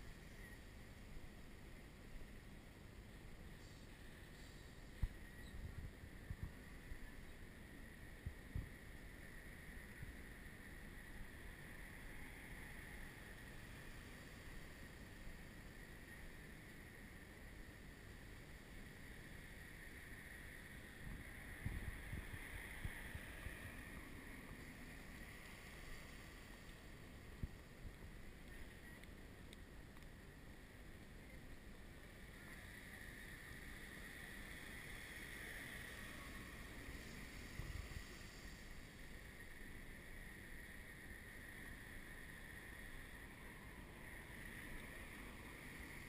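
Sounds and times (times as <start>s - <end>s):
wind rumbling on microphone: 4.2s - 15.4s, 18.8s - 29.1s, 32.4s - 46.0s.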